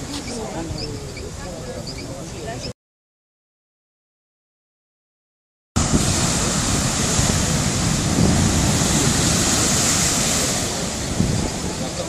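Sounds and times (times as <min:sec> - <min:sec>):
heavy surf breaking: 0:05.8 - 0:12.0
wind buffeting microphone: 0:05.8 - 0:12.0.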